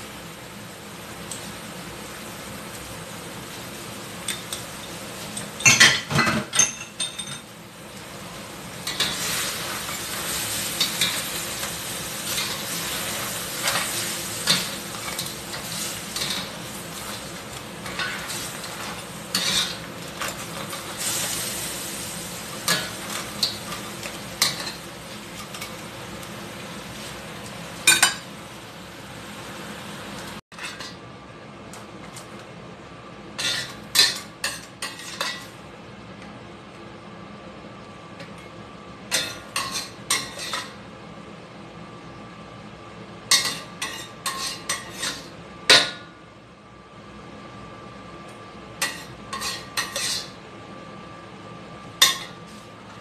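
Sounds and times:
crabs sizzling in a pan: 0.0s - 31.0s, 33.3s - 35.7s, 39.0s - 40.9s, 43.0s - 46.1s, 48.6s - 50.6s
metal spatula scraping and clanking: 8.8s - 21.7s, 30.5s - 31.0s, 33.4s - 35.6s, 39.1s - 40.8s, 43.3s - 45.3s, 48.8s - 50.4s.

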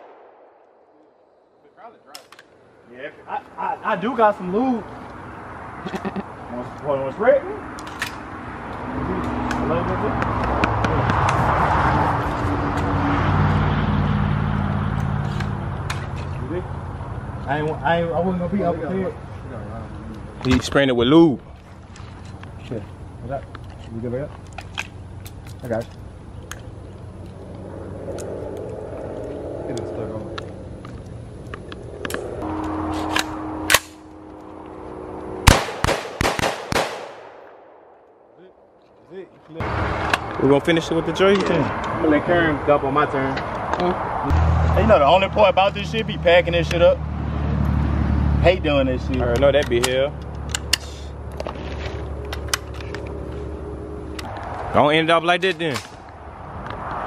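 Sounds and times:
rifle shots: 0.0s - 1.0s, 35.4s - 38.0s.

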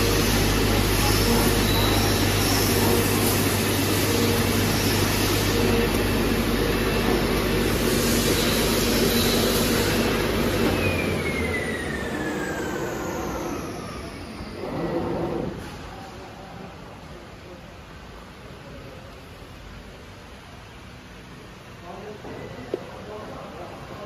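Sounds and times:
cutting machine hum and hiss: 0.0s - 17.1s
motor whine spinning down: 8.4s - 15.6s.

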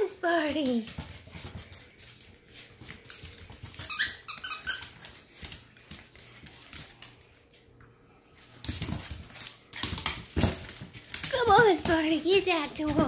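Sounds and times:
dog claws clicking on floor: 0.0s - 7.6s, 8.4s - 13.0s.

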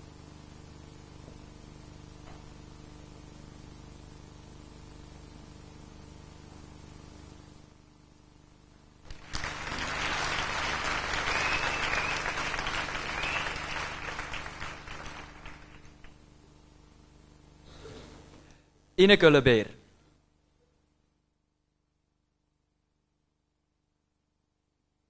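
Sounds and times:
audience applauding: 9.1s - 16.2s.

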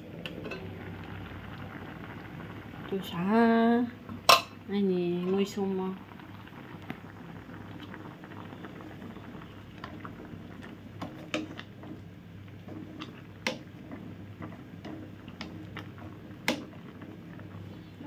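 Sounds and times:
water boiling and bubbling: 0.0s - 18.0s.

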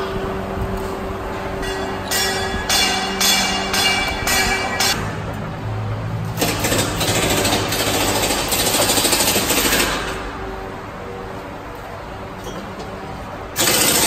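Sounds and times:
loud rapid rattling clatter: 6.4s - 10.3s, 13.6s - 14.0s.

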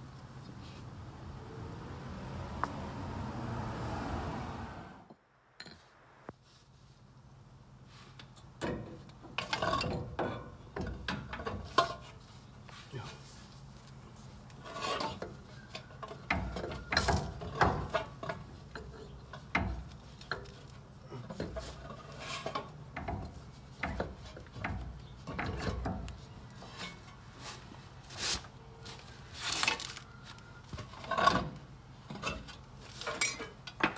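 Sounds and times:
metal clinks and knocks: 14.7s - 26.1s.

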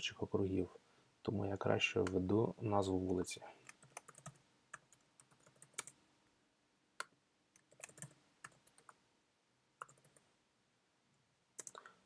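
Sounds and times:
computer keyboard keystrokes: 3.7s - 6.0s, 7.0s - 9.0s, 9.8s - 10.2s, 11.6s - 11.8s.

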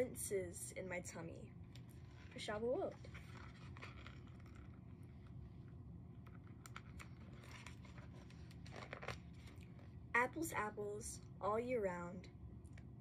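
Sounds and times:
low room hum: 0.0s - 13.0s.

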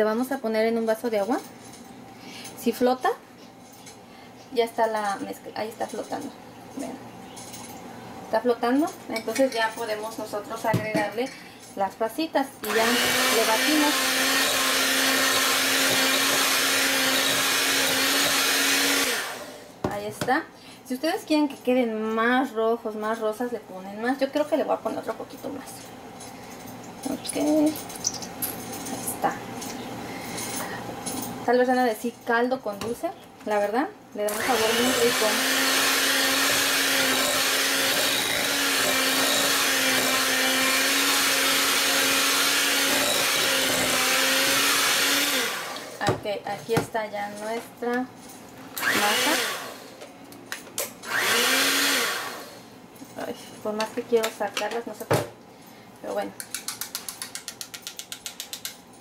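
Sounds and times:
electric hand mixer running: 12.6s - 19.7s, 34.3s - 46.0s, 48.8s - 50.0s, 51.0s - 52.7s.

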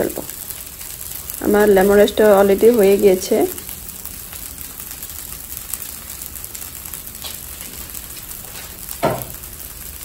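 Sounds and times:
rice sizzling in a frying pan: 0.0s - 10.0s
short knock: 9.0s - 9.3s.

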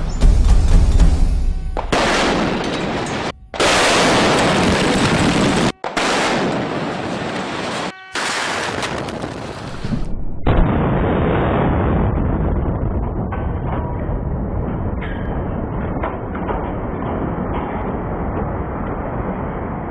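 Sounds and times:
drum-heavy music: 0.0s - 2.0s
explosive blasts: 0.9s - 19.9s
heavy rumble of collapse: 8.5s - 19.9s.

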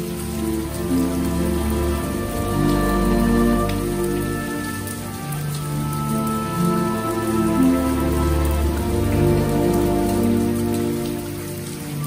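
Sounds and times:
slow music of long held notes: 0.0s - 12.0s
steady rain: 0.0s - 12.0s.

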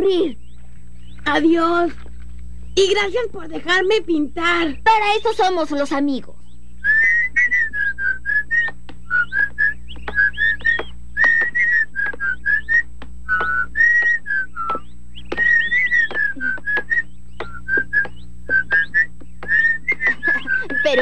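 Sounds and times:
faint steady hum: 0.0s - 21.0s
person whistling a lively tune: 6.8s - 21.0s.

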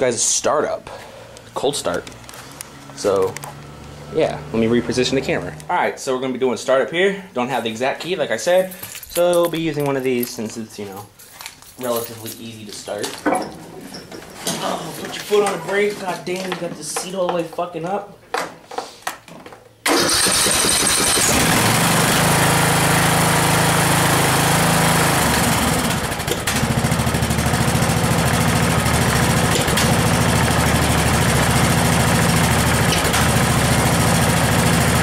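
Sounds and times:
lawn tractor engine starting: 19.8s - 35.0s
engine running steadily: 22.8s - 35.0s.

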